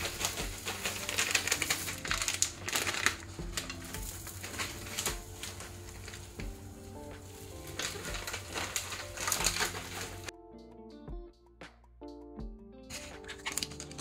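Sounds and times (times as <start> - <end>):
food crackling in a frying pan: 0.0 - 10.3
soft background music: 0.0 - 14.0.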